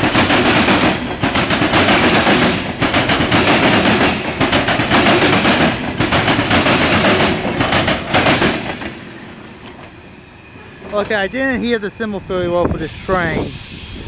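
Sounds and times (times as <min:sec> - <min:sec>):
train wheels clattering on rails: 0:00.0 - 0:10.0.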